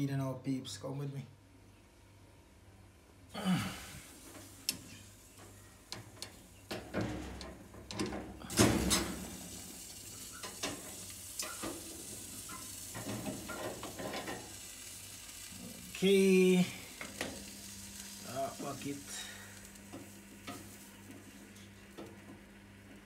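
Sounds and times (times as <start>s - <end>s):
steady hiss: 3.4s - 23.0s.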